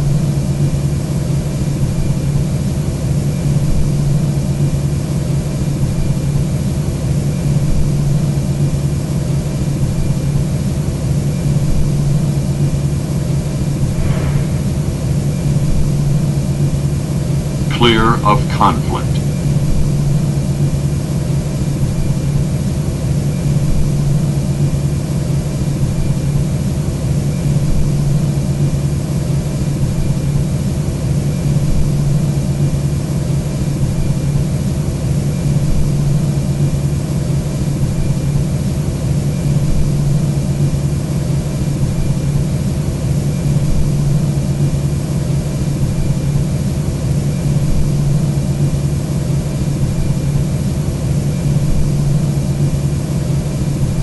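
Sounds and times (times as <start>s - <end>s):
aircraft engines and airflow drone: 0.0s - 54.0s
deep hum: 13.6s - 20.8s.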